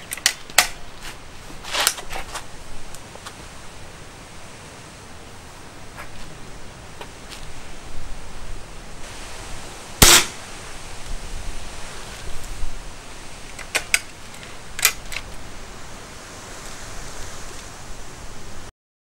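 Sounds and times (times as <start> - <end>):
metallic clicks of rifle cocking: 0.0 - 0.8, 13.5 - 15.3
air rifle firing: 10.0 - 10.4.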